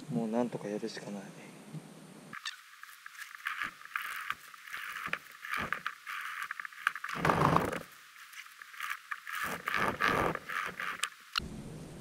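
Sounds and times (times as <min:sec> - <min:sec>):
wooden spindle scraping: 0:02.4 - 0:11.4.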